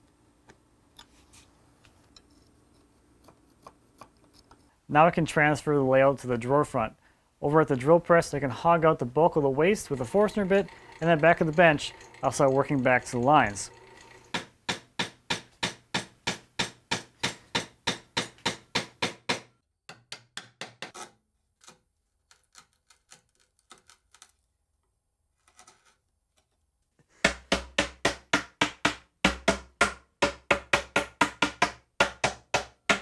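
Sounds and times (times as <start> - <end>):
chisel paring ticks and scrapes: 2.0 - 4.7, 9.6 - 14.5, 19.9 - 24.4.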